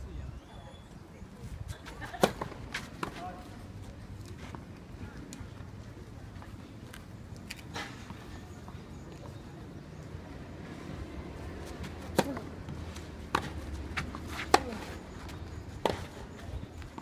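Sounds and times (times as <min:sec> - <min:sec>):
tennis ball struck by rackets: 0:11.8 - 0:15.0, 0:15.8 - 0:16.2.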